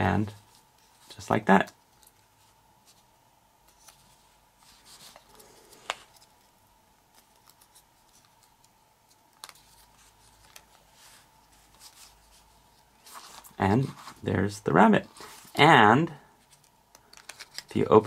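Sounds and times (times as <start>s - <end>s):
paper rustling and crinkling: 3.7s - 6.5s, 7.1s - 14.3s, 16.4s - 17.8s.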